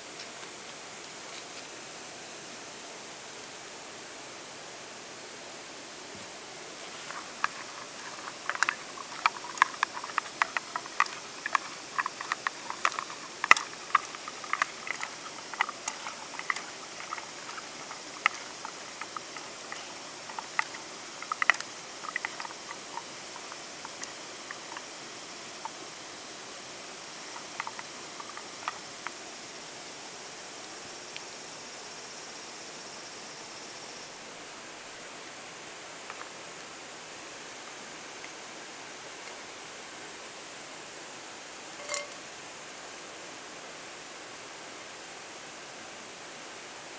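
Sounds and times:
pods clicking in metal pan: 7.1 - 24.9, 27.2 - 28.9, 41.8 - 42.2.

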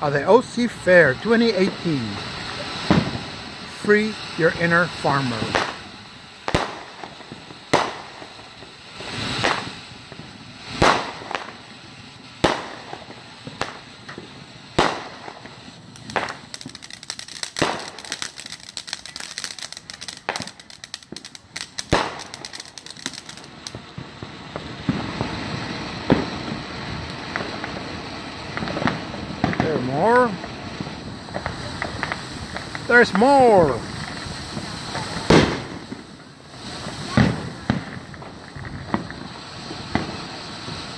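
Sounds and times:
firework crackling and hissing: 0.0 - 40.9
firework sharp bangs: 0.0 - 40.9.

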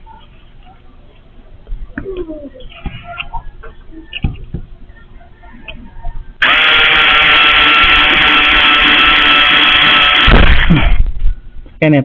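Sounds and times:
electric drill running: 6.4 - 11.0.

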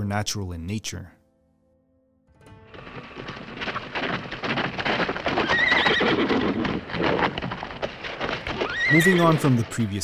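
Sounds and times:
horse hooves galloping: 2.5 - 10.0
horse whinnying: 4.6 - 7.6, 8.5 - 9.3.

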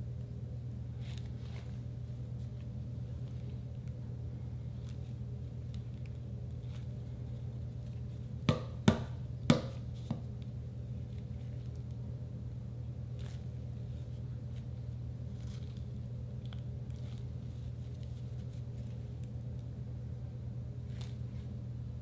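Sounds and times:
steady low hum: 0.0 - 22.0
stress ball squishing: 4.6 - 12.0, 13.0 - 19.3
ball knocking on countertop: 8.5 - 10.2.

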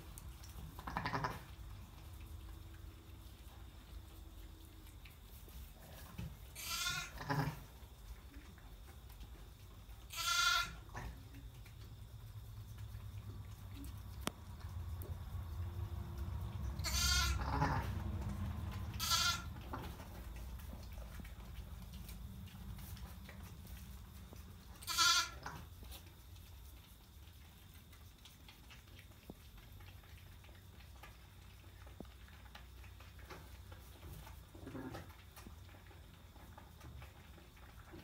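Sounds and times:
sheep bleating: 6.6 - 7.6, 10.1 - 10.8, 16.8 - 17.9, 19.0 - 19.5, 24.8 - 25.4.

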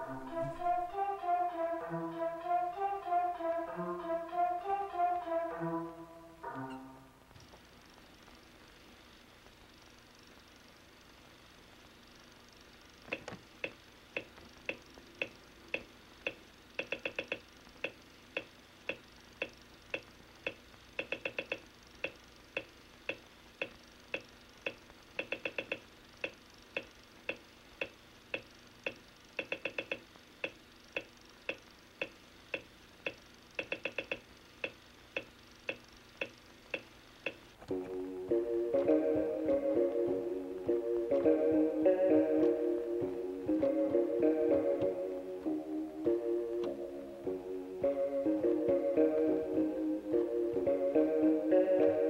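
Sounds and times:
dry ticking beat: 13.1 - 37.4, 38.3 - 49.4.

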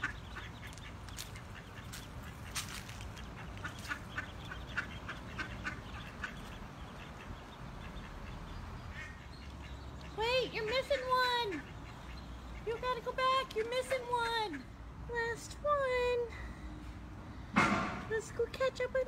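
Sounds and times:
ducks calling: 0.0 - 14.8.

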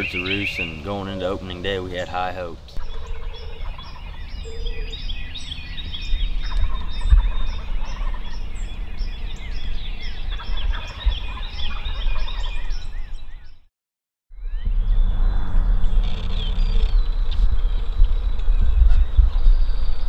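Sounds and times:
songbirds chirping: 0.0 - 13.7, 14.4 - 20.0
low rumble: 0.6 - 12.4, 14.4 - 20.0.

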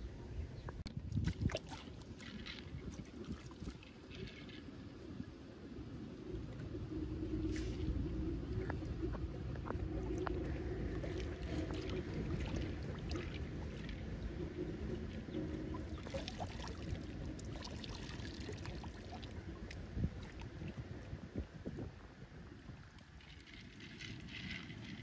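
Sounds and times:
water sloshing and splashing: 0.8 - 25.0
low rumble: 4.8 - 22.9.

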